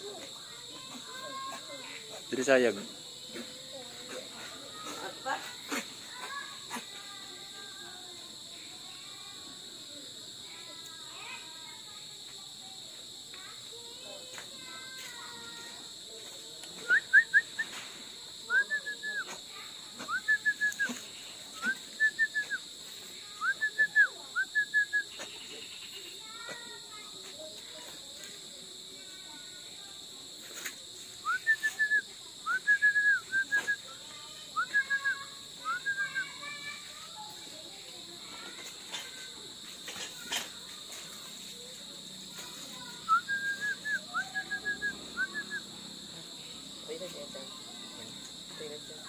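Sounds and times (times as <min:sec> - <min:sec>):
night insects droning: 0:00.0 - 0:49.0
high whistled calls: 0:16.8 - 0:17.9, 0:18.5 - 0:19.4, 0:20.0 - 0:22.6, 0:23.4 - 0:26.1, 0:31.2 - 0:36.7, 0:42.8 - 0:45.7.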